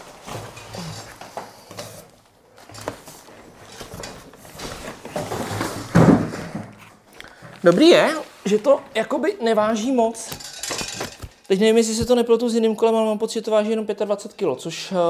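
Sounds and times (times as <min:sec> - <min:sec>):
cardboard packaging rustling and scraping: 0:00.0 - 0:09.2.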